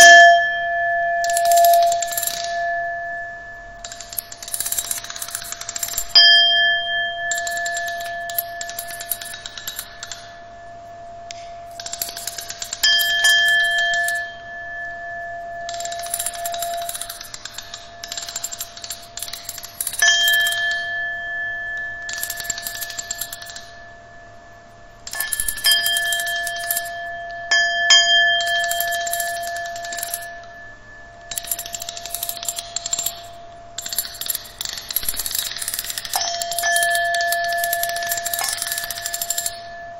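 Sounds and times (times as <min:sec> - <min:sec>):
ringing electronic tones: 0:00.0 - 0:39.9
sharp clicks: 0:01.2 - 0:02.6, 0:03.8 - 0:06.3, 0:07.3 - 0:10.3, 0:11.3 - 0:14.2, 0:15.7 - 0:20.8, 0:22.0 - 0:23.7, 0:25.0 - 0:26.9, 0:28.4 - 0:30.3, 0:31.3 - 0:39.7.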